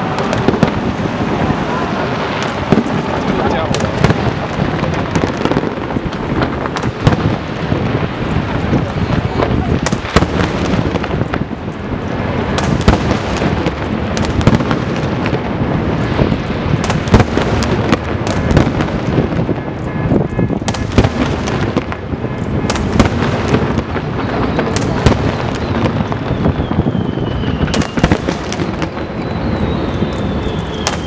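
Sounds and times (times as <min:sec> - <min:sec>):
continuous loud din: 0:00.0 - 0:16.0
fireworks shells bursting: 0:16.0 - 0:31.0.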